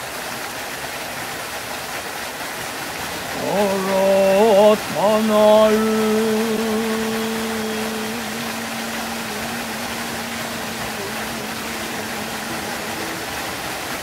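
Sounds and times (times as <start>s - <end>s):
waterfall rushing: 0.0s - 14.0s
long chanted note: 3.2s - 14.0s.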